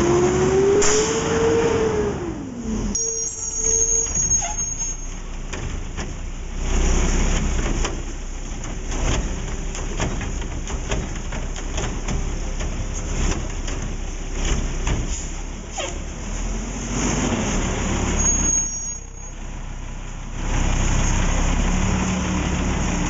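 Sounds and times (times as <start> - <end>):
garbage truck engine running: 1.8 - 23.0
knocks and clanks of mechanical arm: 3.4 - 16.2.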